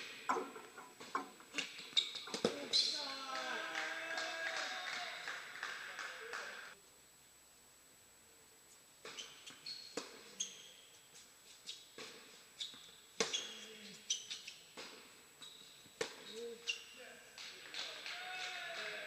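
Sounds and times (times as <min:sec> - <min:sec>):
shoes squeaking on court: 0:00.0 - 0:03.2, 0:09.0 - 0:17.0.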